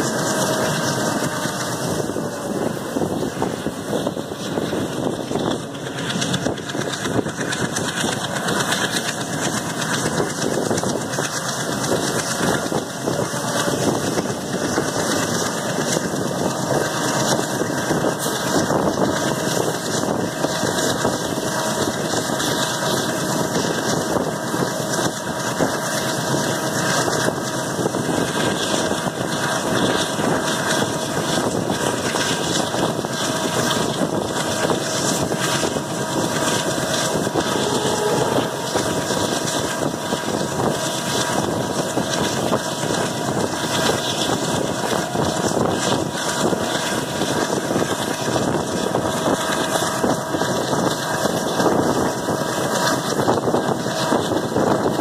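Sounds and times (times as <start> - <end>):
rushing air: 0.0 - 11.3, 31.5 - 49.6
train wheel and rail noise: 0.0 - 55.0.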